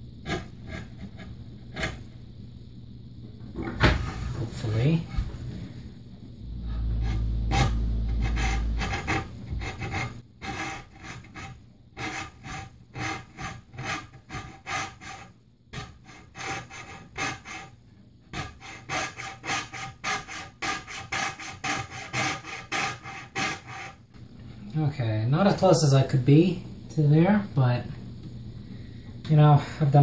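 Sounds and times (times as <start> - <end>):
low rumble: 2.5 - 10.2
hand saw cutting wood: 7.1 - 17.7, 18.3 - 24.0.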